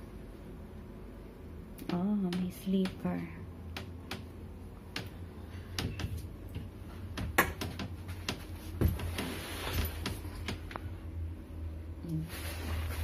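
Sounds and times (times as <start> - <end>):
steady low hum: 0.0 - 13.0
wardrobe door knocks and clicks: 5.8 - 9.1.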